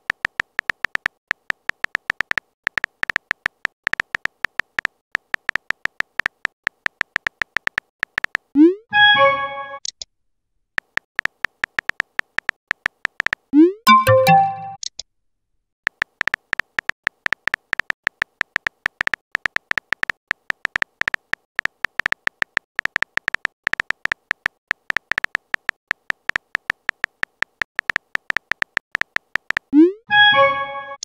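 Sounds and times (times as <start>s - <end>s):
phone keyboard typing clicks: 0.0s - 8.5s, 10.8s - 14.8s, 15.9s - 29.7s
message sent swoop and chime: 13.9s - 14.8s, 29.8s - 31.0s.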